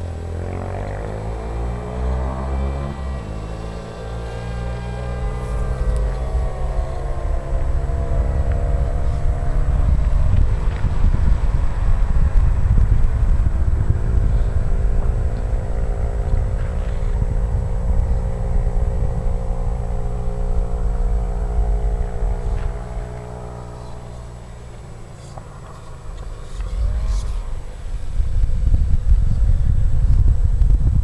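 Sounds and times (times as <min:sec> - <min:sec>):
model plane motor droning: 0:00.0 - 0:11.2
wind buffeting microphone: 0:00.0 - 0:31.0.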